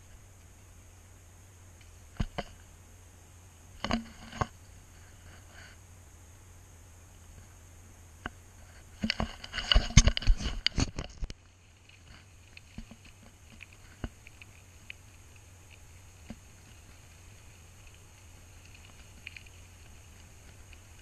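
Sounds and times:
bicycle rattling over gravel: 8.7 - 21.0
light ticks: 10.0 - 21.0.

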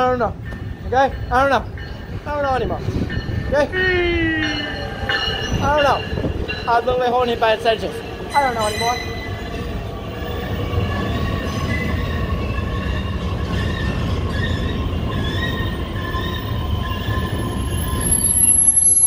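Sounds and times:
train wheels rumbling on rail: 0.0 - 19.0
high-pitched wheel squeals: 10.9 - 19.0.

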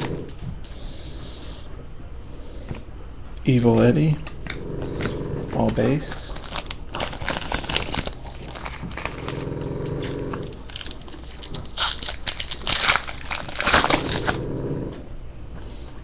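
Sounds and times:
low buzzing hum: 0.0 - 16.0
foil pack tearing and crinkling: 5.9 - 9.6, 10.3 - 14.4.

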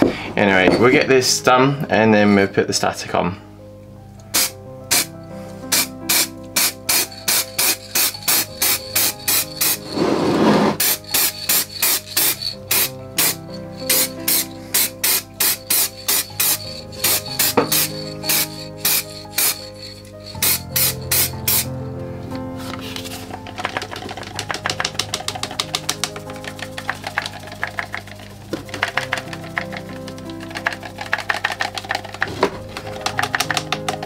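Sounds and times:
music with quick beat: 4.3 - 10.0, 10.8 - 21.7, 22.9 - 34.0
aerosol can spraying: 4.3 - 10.1, 10.8 - 21.7.

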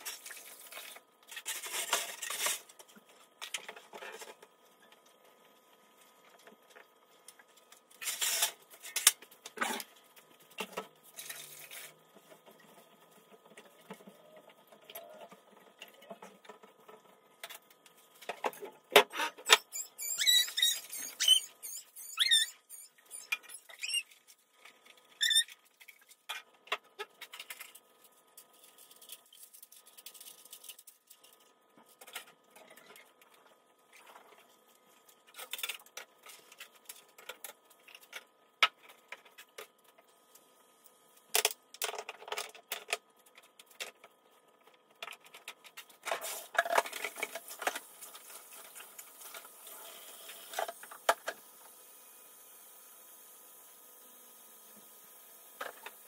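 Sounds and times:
cloth squeaking on surfaces: 19.6 - 24.2.

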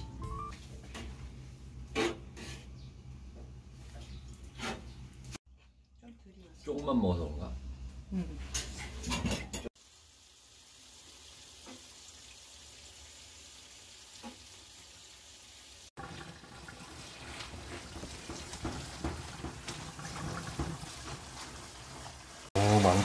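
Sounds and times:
water boiling in a pot: 8.9 - 23.0
tap water running: 9.1 - 23.0
hands rinsing noodles: 16.0 - 23.0.

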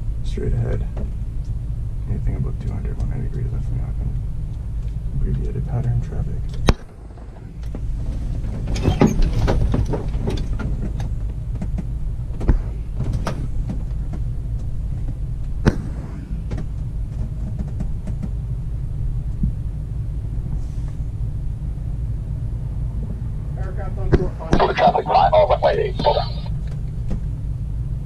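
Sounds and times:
wheel rumbling on runway: 0.0 - 28.0.

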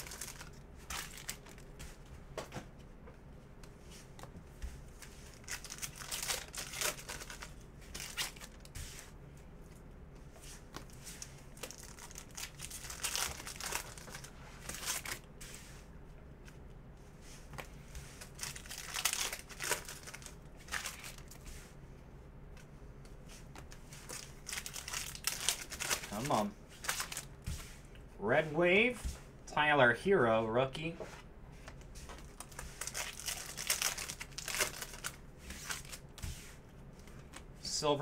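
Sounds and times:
card wrappers tearing and crinkling: 0.0 - 1.7, 5.3 - 8.7, 11.5 - 15.2, 18.2 - 21.4, 24.0 - 27.3, 32.2 - 36.1.

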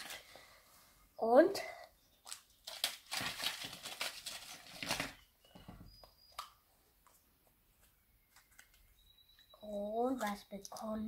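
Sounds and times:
foil wrapper crinkling: 2.2 - 5.3.

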